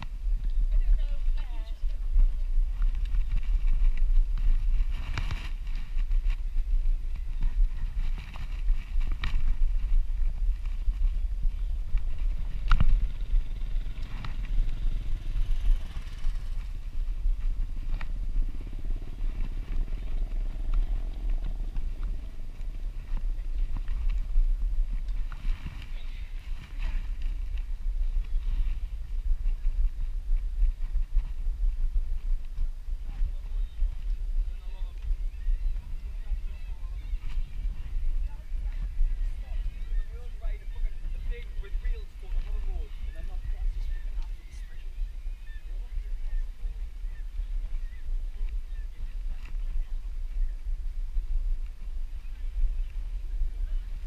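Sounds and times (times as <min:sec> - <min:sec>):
bicycle tyres rumbling on paving: 0:00.0 - 0:54.0.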